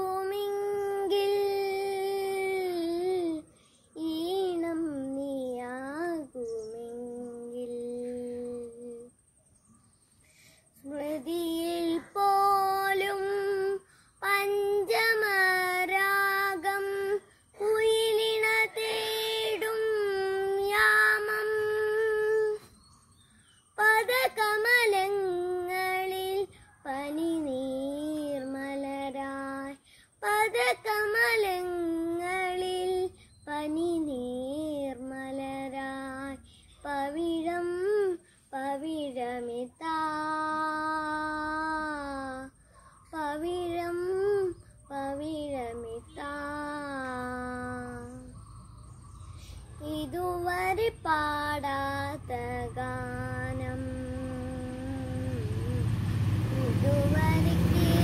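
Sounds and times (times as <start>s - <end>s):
boy singing unaccompanied: 0.0s - 9.2s, 10.7s - 22.8s, 23.6s - 48.4s, 49.4s - 58.0s.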